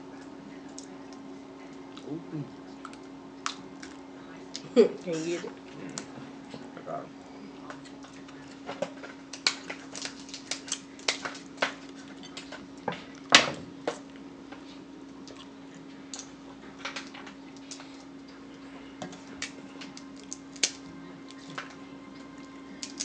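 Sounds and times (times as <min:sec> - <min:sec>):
steady low hum: 0:00.0 - 0:23.0
crab shells cracking: 0:08.9 - 0:12.6, 0:19.2 - 0:21.7, 0:22.8 - 0:23.0.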